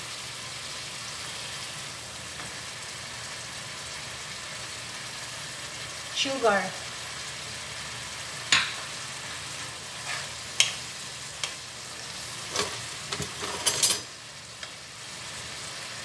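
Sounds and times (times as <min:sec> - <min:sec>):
vegetables sizzling in a frying pan: 0:00.0 - 0:16.0
wooden spatula scraping a pan: 0:09.2 - 0:10.4, 0:12.2 - 0:13.9.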